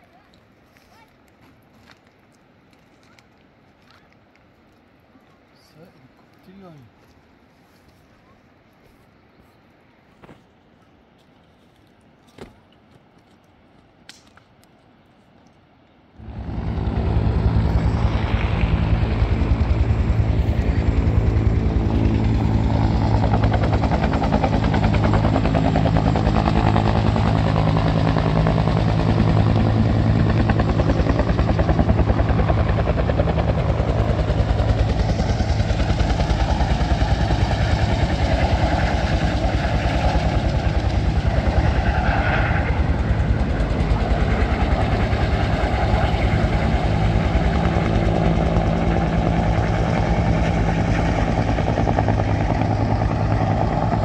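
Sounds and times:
engine running steadily: 16.2s - 41.7s.

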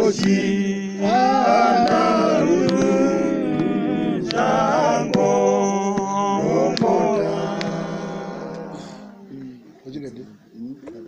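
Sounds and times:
congregation singing a cappella: 0.0s - 9.3s.

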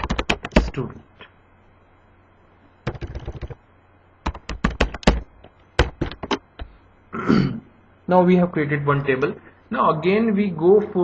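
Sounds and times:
computer keyboard typing: 0.0s - 0.8s, 2.8s - 3.6s, 4.2s - 6.4s.

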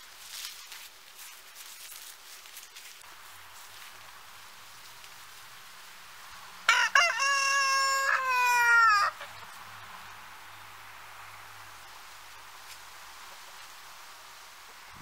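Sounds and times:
rooster crowing: 6.7s - 9.3s.

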